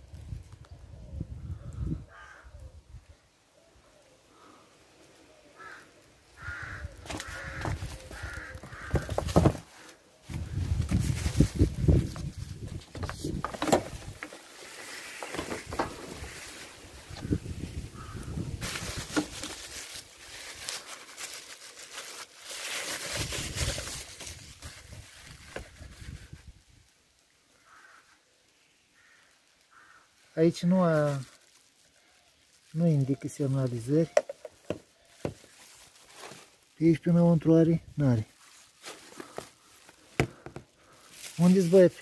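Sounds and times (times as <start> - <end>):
wind rumble on microphone: 0.0 - 3.1, 10.3 - 14.2, 15.6 - 19.2, 23.2 - 26.8
rustling handling noises: 5.2 - 26.6, 29.8 - 42.0.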